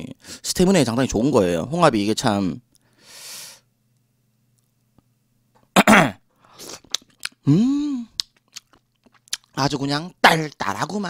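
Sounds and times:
person humming mmm: 0:06.6 - 0:08.3
wet chewing clicks: 0:06.8 - 0:07.4, 0:08.1 - 0:09.6.

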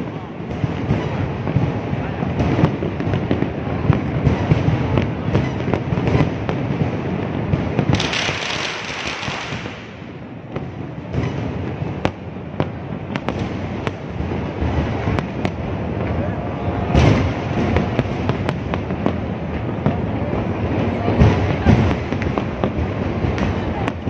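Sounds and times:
fireworks bangs and pops: 0:00.0 - 0:24.0
fireworks hissing: 0:00.5 - 0:12.0.

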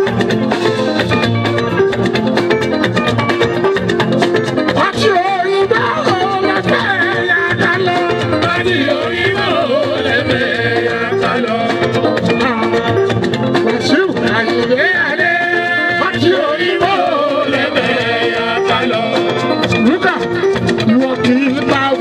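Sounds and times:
live band music: 0:00.0 - 0:22.0
man singing into a microphone: 0:04.8 - 0:12.1, 0:13.7 - 0:20.2.

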